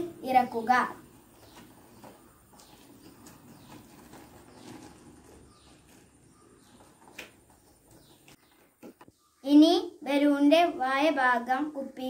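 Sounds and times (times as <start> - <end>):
balloon rustling and crinkling: 1.2 - 9.0.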